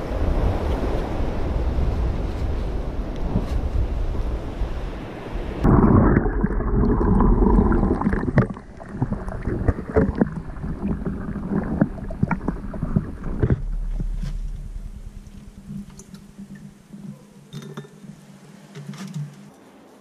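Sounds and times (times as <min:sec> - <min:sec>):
surf: 0:00.0 - 0:20.0
wind: 0:00.0 - 0:20.0
muffled underwater sloshing: 0:05.3 - 0:19.5
steady low hum: 0:05.7 - 0:18.6.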